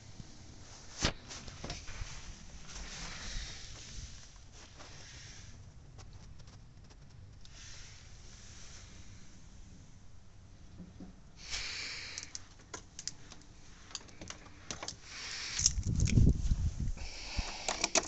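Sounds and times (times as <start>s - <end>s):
clips and cables clicking and rustling: 12.2s - 16.3s, 17.4s - 18.0s.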